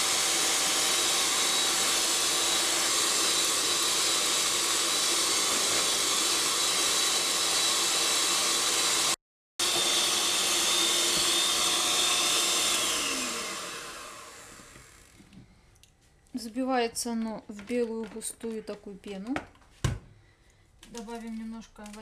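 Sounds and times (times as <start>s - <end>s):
electric mixer motor whining: 0.0s - 15.4s.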